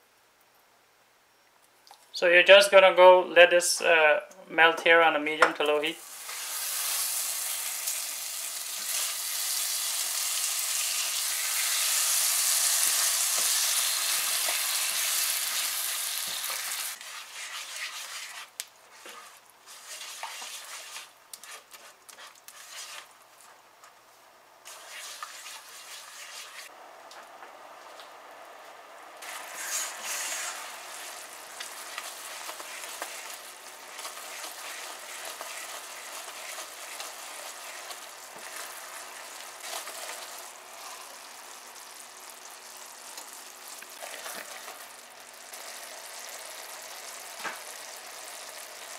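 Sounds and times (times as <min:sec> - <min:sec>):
sugar sizzling in a pan: 0:06.0 - 0:23.1, 0:24.7 - 0:26.7, 0:29.2 - 0:48.9.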